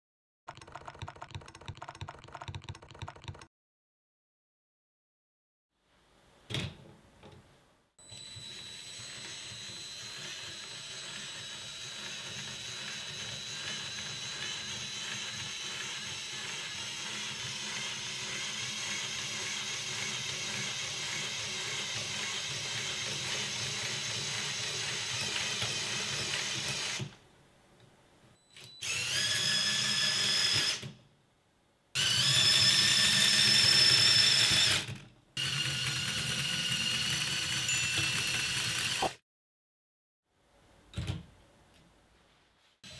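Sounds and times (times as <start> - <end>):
toy train motor whirring: 8.3 - 27.1, 28.8 - 30.8, 32.0 - 39.2.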